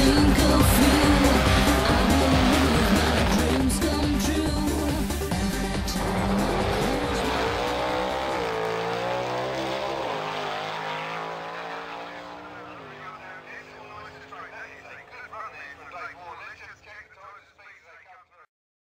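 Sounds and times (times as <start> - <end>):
race car engine: 0.0 - 17.2.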